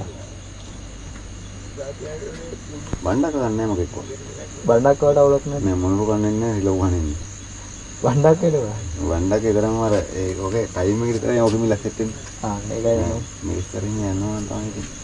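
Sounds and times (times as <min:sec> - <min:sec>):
crickets chirring: 0:00.0 - 0:15.0
man chanting: 0:08.0 - 0:15.0.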